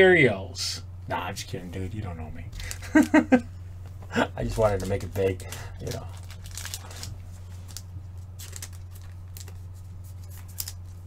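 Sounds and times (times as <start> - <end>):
low electrical hum: 0.0 - 11.0
cards rustling and scraping: 4.4 - 11.0.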